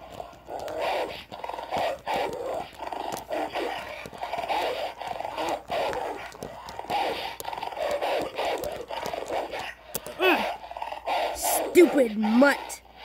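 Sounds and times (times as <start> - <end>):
sharp clicks: 0.0 - 10.2
dogs growling and snarling: 0.0 - 13.0.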